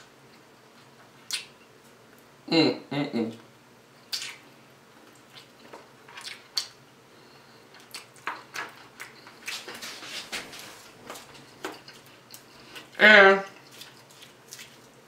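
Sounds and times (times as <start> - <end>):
person chewing wetly: 4.0 - 6.8, 7.6 - 9.9, 11.0 - 15.0.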